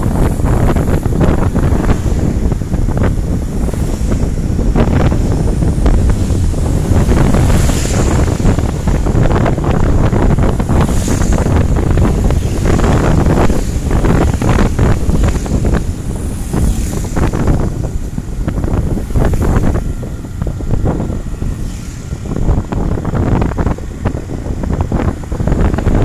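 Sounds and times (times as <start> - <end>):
road and engine rumble: 0.0 - 26.0
wind buffeting microphone: 0.0 - 26.0.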